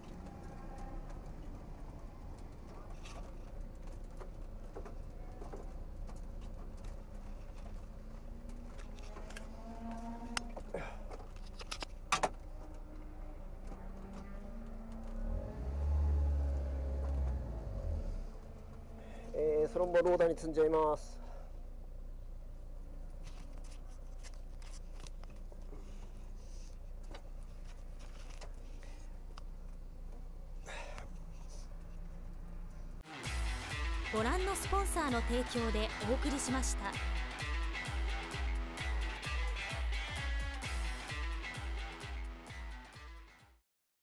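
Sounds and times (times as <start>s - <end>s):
helmet clicks and rustles: 0.0s - 15.3s, 23.0s - 30.3s
car engine hum and rumble: 0.0s - 40.7s
seat harness clicks: 8.6s - 12.8s.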